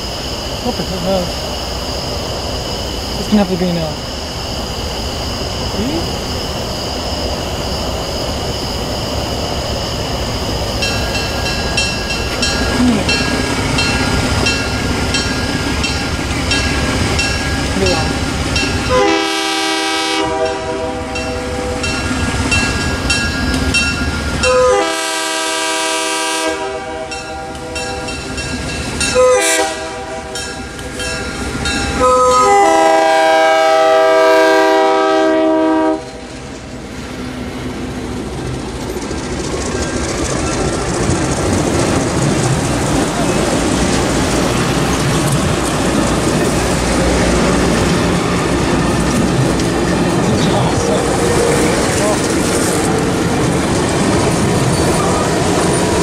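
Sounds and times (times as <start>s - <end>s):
train wheels rumbling on rails: 0.0s - 56.0s
locomotive horn blasts: 18.9s - 21.9s, 24.4s - 27.8s, 29.2s - 30.4s, 32.0s - 36.2s.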